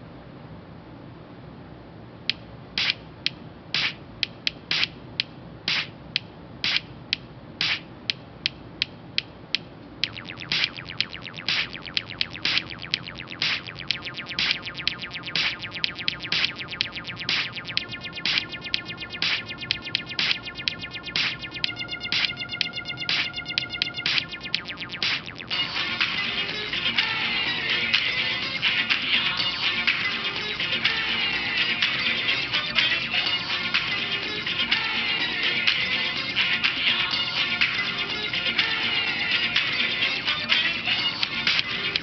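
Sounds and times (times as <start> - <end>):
sharp percussive clicks: 2.3 - 25.5.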